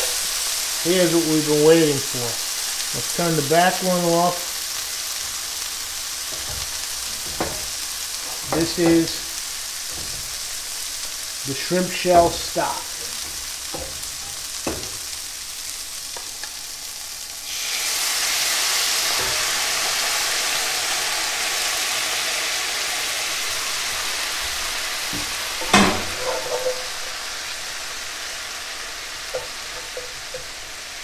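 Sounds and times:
greens sizzling in a skillet: 0:00.0 - 0:31.0
loud hiss of boiling liquid: 0:00.0 - 0:31.0
metal clank: 0:06.3 - 0:10.8, 0:12.0 - 0:15.2, 0:25.2 - 0:27.2, 0:29.3 - 0:30.6.

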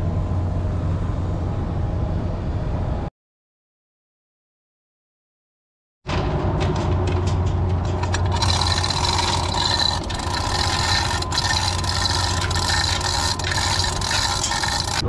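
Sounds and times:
heavy machinery engine humming: 0:06.2 - 0:15.0
metallic clicks and rattles: 0:06.6 - 0:15.0.

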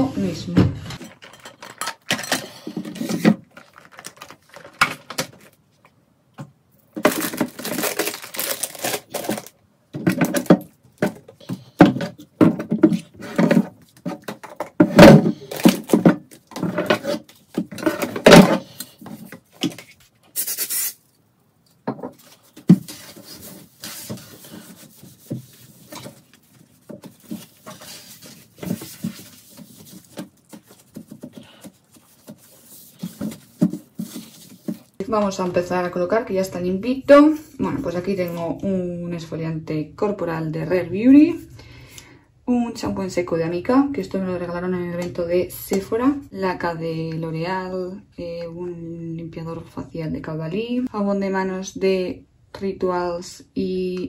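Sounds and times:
plastic bins and bottles clattering: 0:00.6 - 0:05.6, 0:06.9 - 0:20.0, 0:21.8 - 0:35.4
short hiss: 0:20.4 - 0:21.0.

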